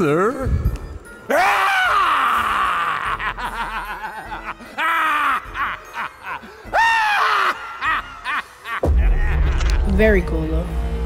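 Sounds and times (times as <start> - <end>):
music: 0.0 - 11.0
creepy voice laughing: 2.5 - 9.8.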